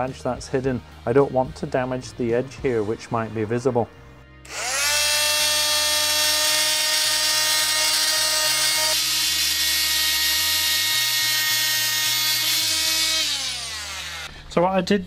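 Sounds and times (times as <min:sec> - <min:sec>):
oscillating multi-tool whine: 0:04.5 - 0:14.3.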